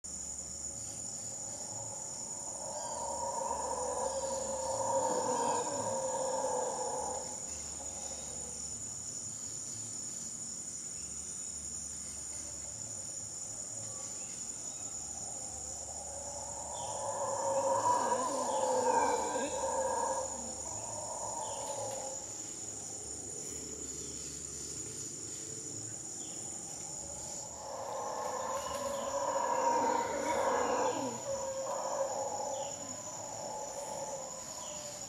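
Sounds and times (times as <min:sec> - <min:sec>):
high insect drone: 0:00.0 - 0:35.0
howler monkey roaring: 0:01.6 - 0:08.4, 0:15.4 - 0:24.0, 0:26.4 - 0:35.0.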